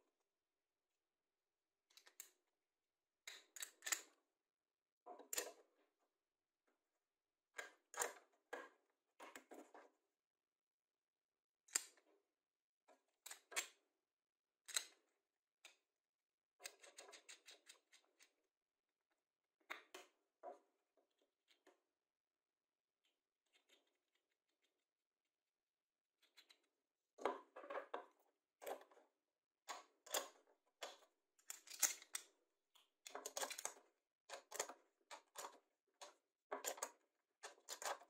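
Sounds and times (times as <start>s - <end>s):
metal hardware clicking on wood: 31.4s - 32.2s.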